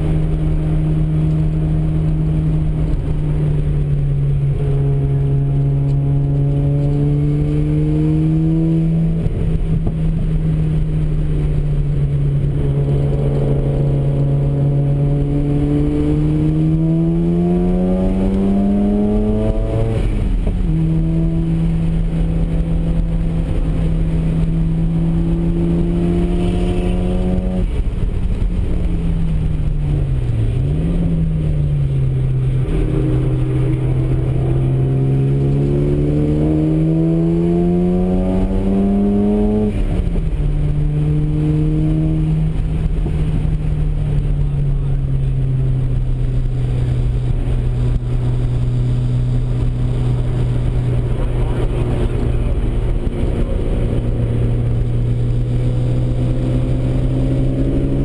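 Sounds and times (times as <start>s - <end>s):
road and wind noise: 0.0s - 58.0s
rotary engine accelerating: 0.0s - 58.0s.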